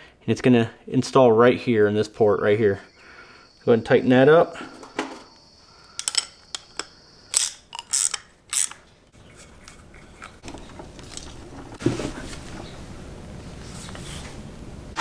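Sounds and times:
metal hand tools clinking: 6.0s - 8.8s
ratchet rasping: 6.0s - 8.8s.

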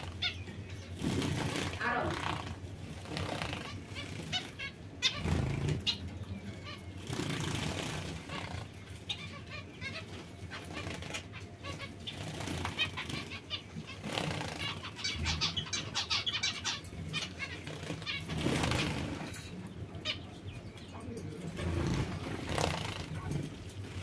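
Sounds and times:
finches wings flapping: 0.9s - 4.6s, 12.1s - 15.0s, 17.5s - 19.4s, 21.5s - 24.0s.

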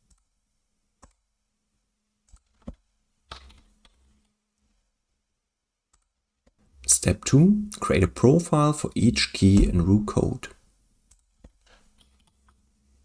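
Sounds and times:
computer mouse and keyboard clicks: 2.2s - 4.3s, 11.1s - 12.6s.

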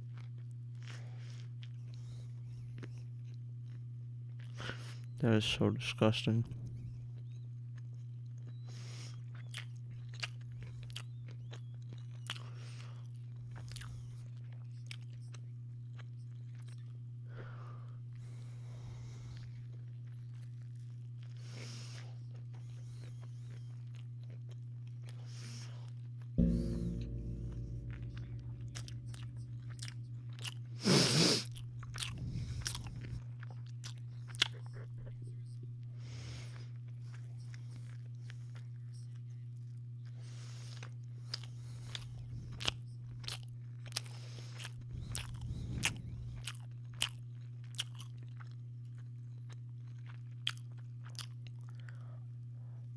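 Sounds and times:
person chewing a sandwich: 0.0s - 5.2s, 6.6s - 26.4s, 29.8s - 52.9s
low hum: 26.4s - 33.2s
steady low hum: 26.4s - 40.2s.

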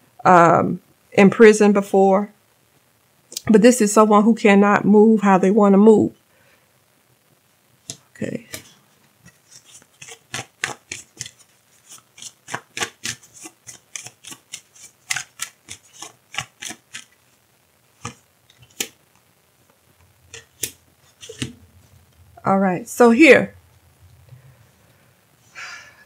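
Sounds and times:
cards being shuffled: 7.9s - 17.2s, 18.0s - 19.0s, 20.3s - 21.6s
cards laid on table: 9.3s - 17.1s, 18.0s - 19.0s, 20.3s - 21.6s.

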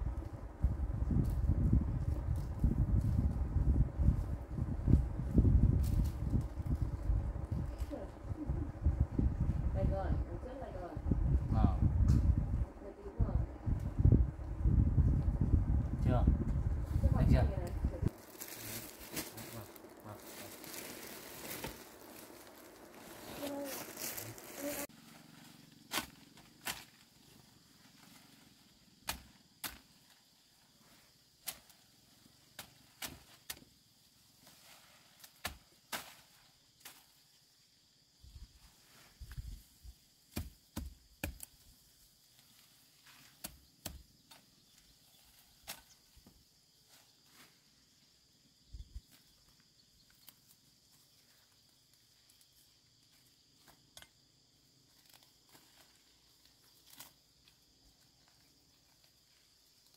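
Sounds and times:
faint high insect drone: 0.0s - 59.9s
shrub stems snapping: 25.9s - 27.0s, 31.4s - 31.8s, 56.8s - 57.2s.

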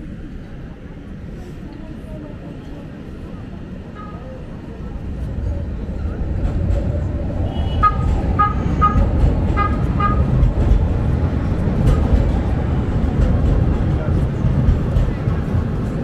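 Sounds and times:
street traffic rumble: 0.0s - 16.0s
vehicle horn tooting: 7.4s - 9.0s.

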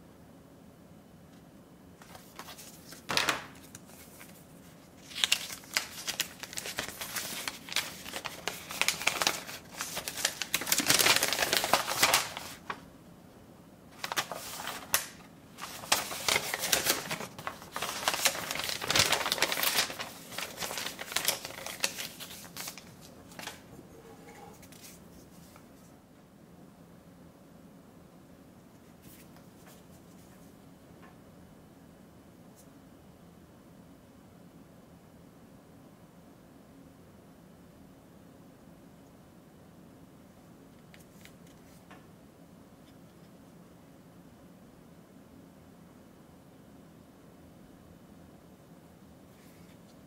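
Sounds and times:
paper rustling and crinkling: 2.0s - 12.8s, 13.9s - 25.9s, 40.9s - 41.9s.

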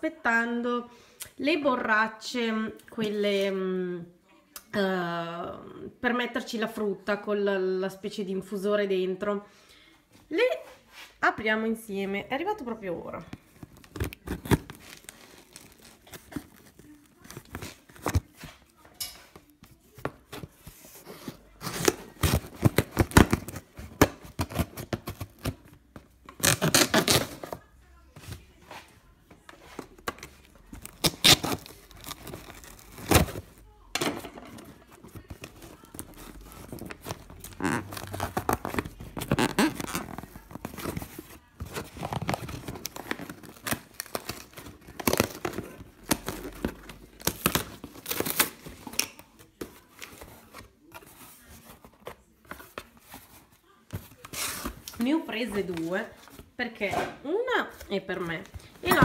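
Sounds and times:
cardboard and tape tearing: 13.6s - 18.4s, 20.4s - 25.7s, 26.3s - 27.6s, 30.2s - 33.6s, 34.6s - 53.4s.

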